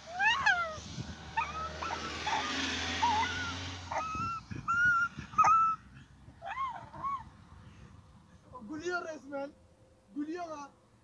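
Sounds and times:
boy squealing and whining: 0:00.0 - 0:07.4.

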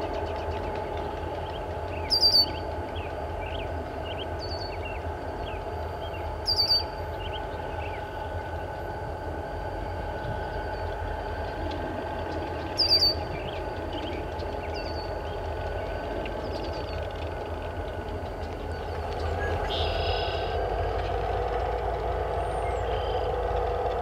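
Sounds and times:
diesel locomotive rumble: 0:00.0 - 0:24.0
bird chirping: 0:01.9 - 0:08.0, 0:12.6 - 0:17.0.

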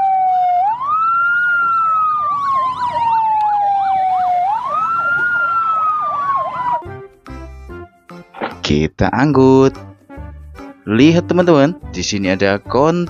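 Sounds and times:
siren yelp warbling: 0:00.0 - 0:06.9
fire engine siren wailing: 0:00.0 - 0:07.2.

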